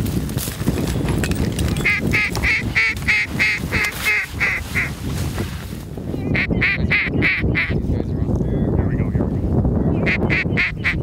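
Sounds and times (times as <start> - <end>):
wind rumbling on microphone: 0.0 - 11.0
duck quacking: 1.9 - 4.9, 6.3 - 7.8, 10.0 - 11.0.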